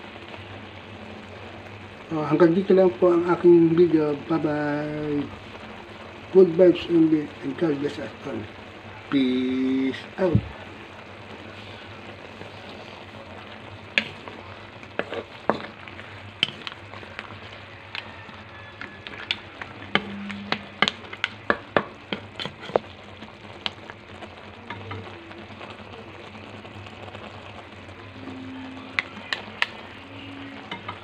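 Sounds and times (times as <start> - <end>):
sauce sizzling: 0.0 - 31.0
shells knocking against wok: 18.8 - 22.8.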